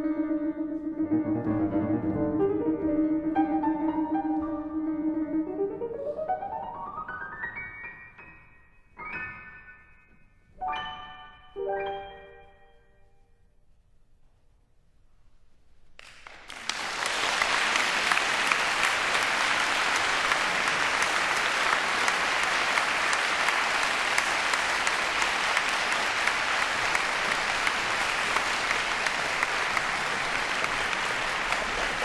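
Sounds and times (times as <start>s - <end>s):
audience applause: 16.0s - 32.0s.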